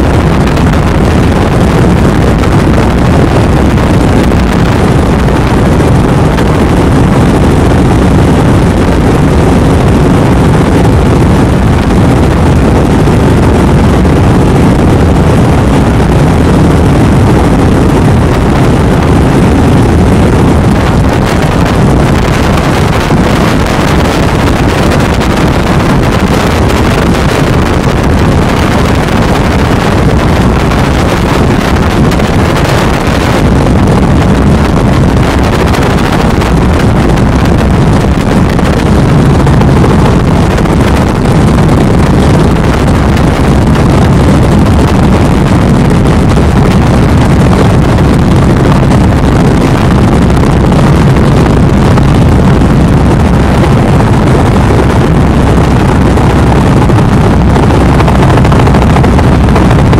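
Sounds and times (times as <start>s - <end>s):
wind on microphone: 0.0s - 59.9s
helicopter rotor and engine: 57.0s - 59.9s.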